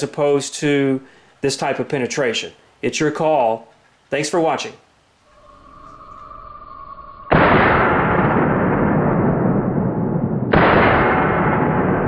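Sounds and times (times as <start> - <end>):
long rumble: 5.3 - 10.5.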